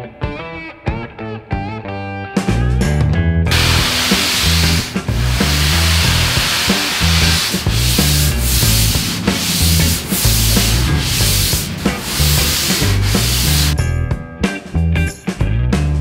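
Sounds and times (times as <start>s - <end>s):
bass line of backing music: 2.5s - 16.0s
sanding block on foam: 3.5s - 13.8s.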